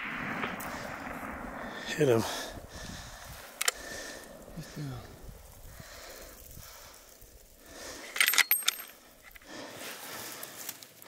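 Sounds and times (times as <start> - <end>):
rifle bolt metallic clicks: 3.6 - 3.8, 8.0 - 9.5.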